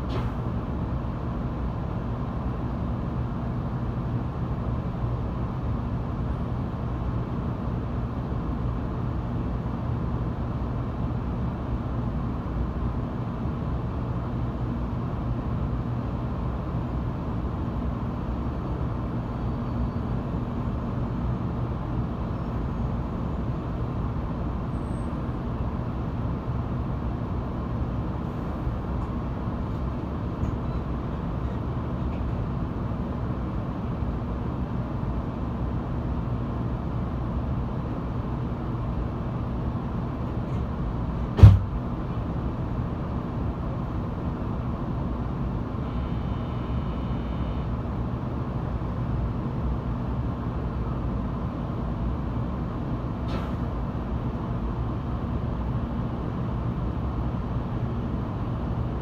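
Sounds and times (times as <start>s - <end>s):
train interior hum and rumble: 0.0s - 59.0s.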